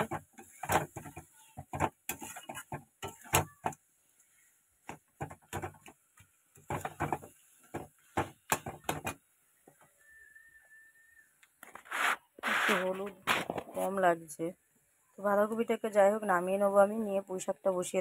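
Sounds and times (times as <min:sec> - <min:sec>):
metal spatula scraping a wok: 0:02.0 - 0:03.4.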